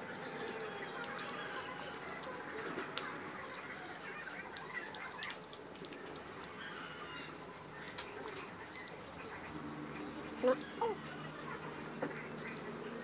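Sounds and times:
fingers picking at food: 0:00.0 - 0:09.4.

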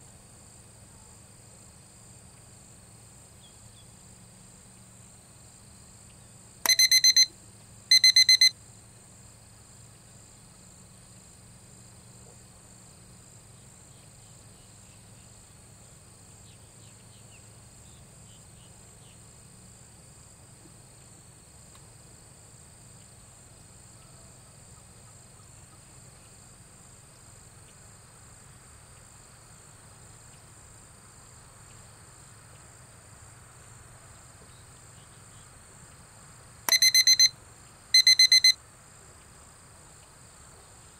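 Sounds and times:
electronic timer beeping: 0:06.6 - 0:07.3, 0:07.9 - 0:08.5, 0:36.7 - 0:37.3, 0:38.0 - 0:38.6.

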